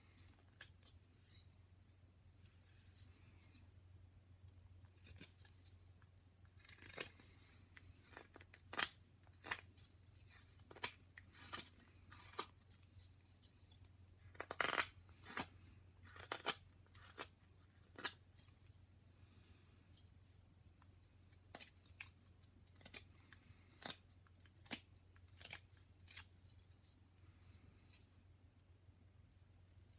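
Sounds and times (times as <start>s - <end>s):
carving knife slicing wood: 6.5s - 12.6s, 14.2s - 18.3s, 21.4s - 26.3s.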